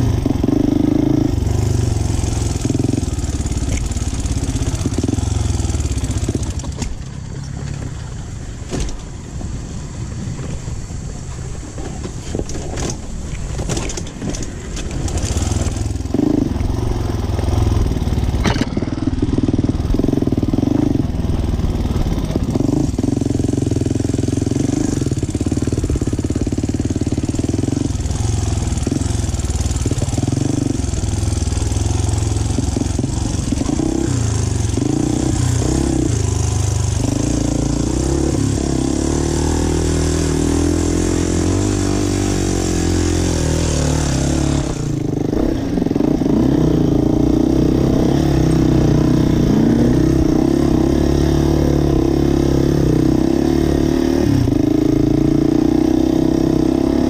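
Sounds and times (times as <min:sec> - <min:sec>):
dirt bike engine revving: 0:00.0 - 0:06.7, 0:14.9 - 0:57.0.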